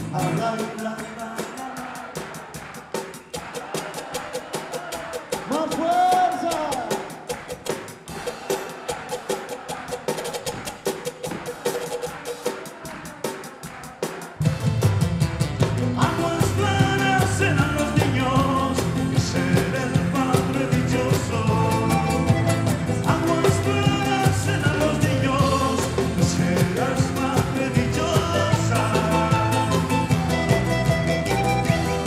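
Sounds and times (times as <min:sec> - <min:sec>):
drum kit steady beat: 0:00.0 - 0:32.0
strummed charangos and guitars: 0:00.0 - 0:32.0
electric bass: 0:14.5 - 0:32.0
high melody line: 0:16.0 - 0:32.0.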